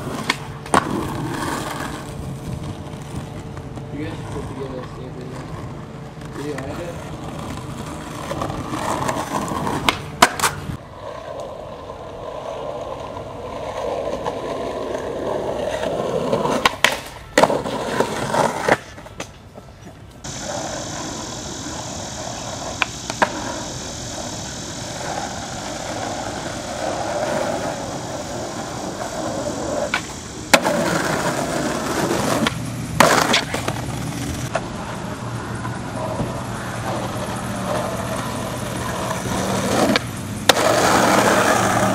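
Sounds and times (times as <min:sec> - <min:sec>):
skateboard clacks popping and landing: 0:00.0 - 0:03.8, 0:07.5 - 0:10.7, 0:16.4 - 0:20.4, 0:29.8 - 0:34.6
skateboard wheels rolling on pavement: 0:00.0 - 0:41.9.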